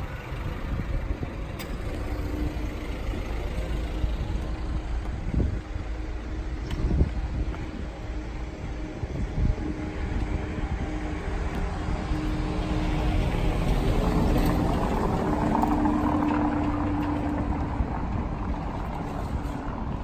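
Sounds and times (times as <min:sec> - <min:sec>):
car engine hum: 0:00.0 - 0:20.0
tyres rumbling on cobblestones: 0:00.0 - 0:20.0.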